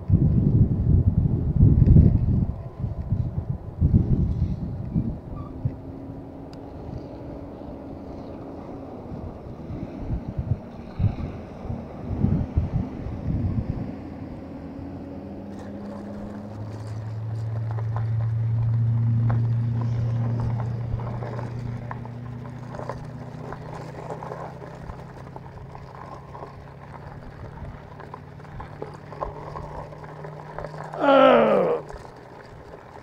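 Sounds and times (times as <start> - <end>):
vehicle engine hum passing: 0.0 - 33.0.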